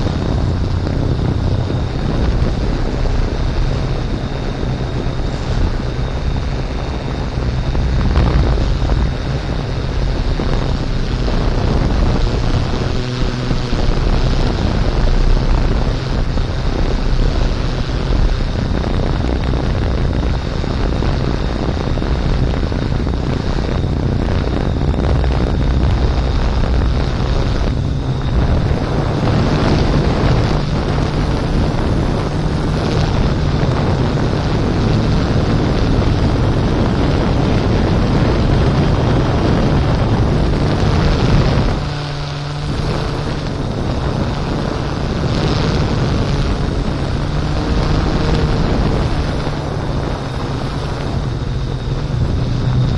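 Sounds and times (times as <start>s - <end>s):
drone motors whirring: 0.0s - 52.9s
wind on microphone: 0.0s - 52.9s.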